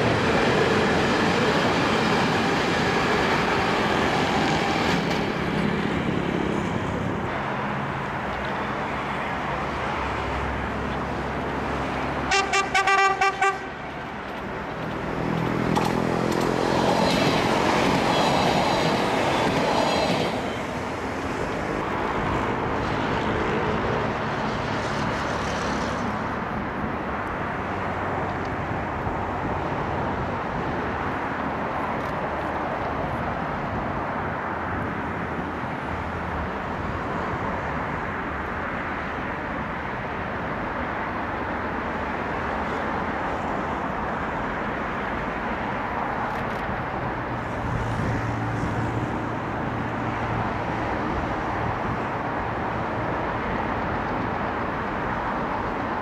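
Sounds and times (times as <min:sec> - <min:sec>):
train wheels rumbling on rails: 0:00.0 - 0:10.0, 0:10.9 - 0:26.9
road traffic hum: 0:00.0 - 0:56.0
train horn short toots: 0:12.3 - 0:13.8.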